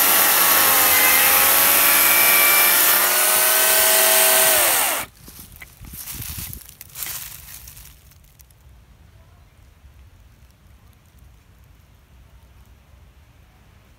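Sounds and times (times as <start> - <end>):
dry leaves and twigs crunching: 2.6 - 8.7
wind rumble on microphone: 5.2 - 6.9.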